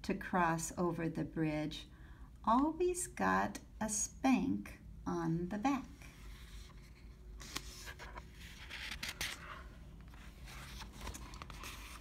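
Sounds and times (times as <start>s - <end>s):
paper page rustling: 6.2s - 12.0s.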